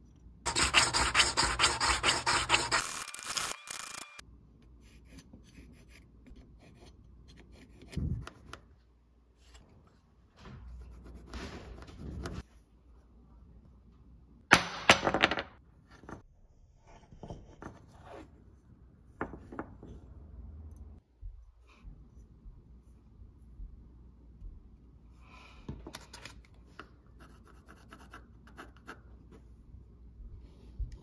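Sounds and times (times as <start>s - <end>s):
pencil marking wood: 0.5s - 2.9s, 27.2s - 29.1s.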